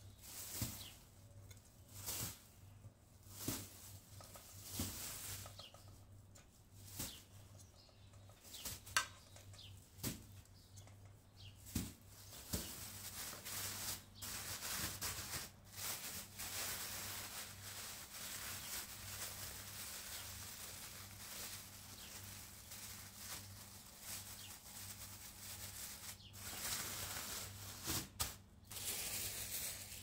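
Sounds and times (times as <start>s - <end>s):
plastic bag crinkling: 12.2s - 30.0s.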